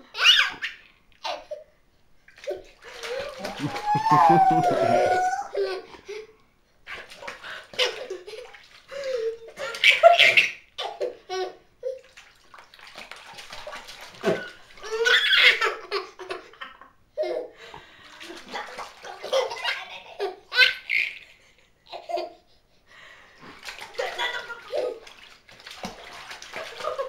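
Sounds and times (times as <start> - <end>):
baby laughing and squealing: 0.1 - 1.5, 3.0 - 5.8, 14.4 - 15.9
bathwater sloshing and splashing: 2.2 - 5.8, 6.9 - 11.0, 11.8 - 16.5, 17.8 - 20.8, 23.4 - 27.0.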